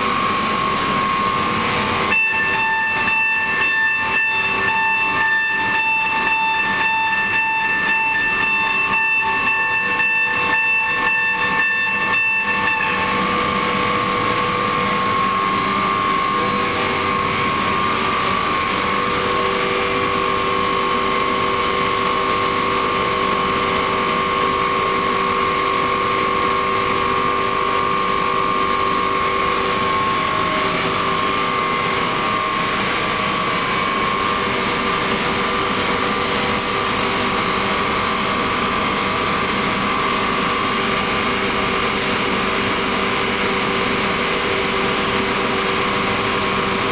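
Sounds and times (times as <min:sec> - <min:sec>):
burner drone: 0:00.0 - 0:46.9
high whine: 0:00.0 - 0:46.9.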